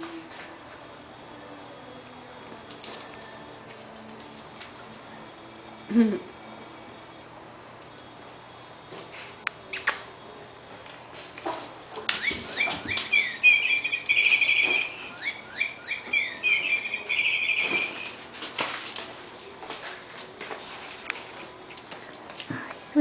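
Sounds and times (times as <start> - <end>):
bird-like chirping with trill: 12.1 - 18.2.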